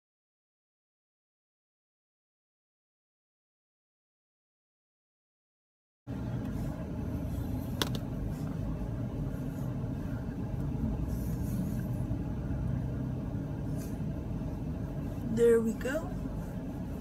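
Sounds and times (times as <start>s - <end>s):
car cabin rumble: 6.1s - 17.0s.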